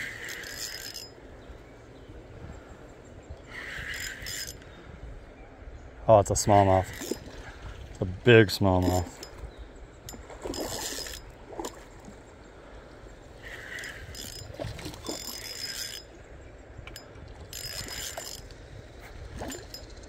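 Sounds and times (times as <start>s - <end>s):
fishing reel whirring and clicking: 0.0s - 1.2s, 3.6s - 4.6s, 6.8s - 7.2s, 10.0s - 11.8s, 13.4s - 16.2s, 16.9s - 20.0s.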